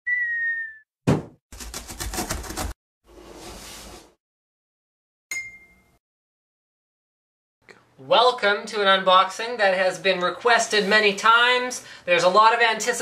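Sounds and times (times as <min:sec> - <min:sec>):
box landing thump: 0:01.1 - 0:01.4
bright ding: 0:05.3 - 0:06.0.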